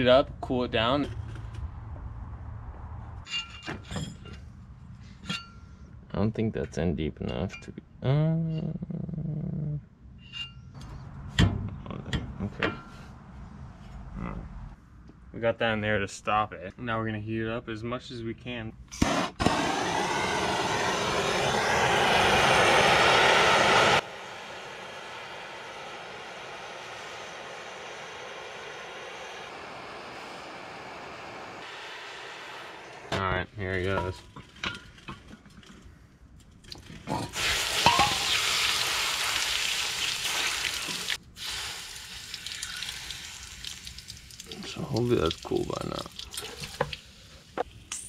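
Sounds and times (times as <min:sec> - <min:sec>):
gas torch roaring hiss: 0:19.0 - 0:33.4, 0:37.3 - 0:43.6
water sizzling on hot metal: 0:37.3 - 0:47.6.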